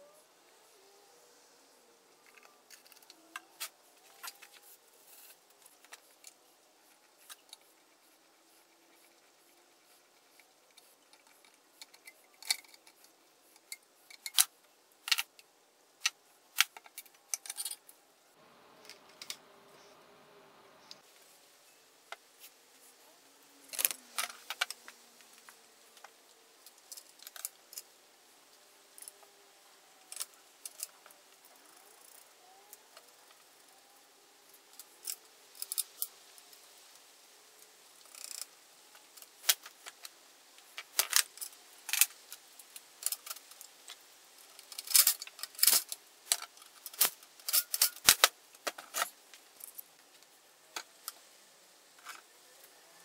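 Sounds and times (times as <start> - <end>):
metal parts clinking: 16.0 - 17.8, 44.6 - 49.9.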